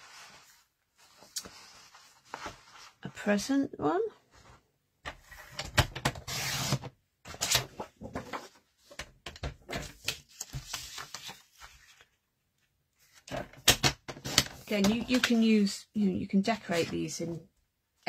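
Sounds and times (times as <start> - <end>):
paper rustling: 9.7 - 12.2.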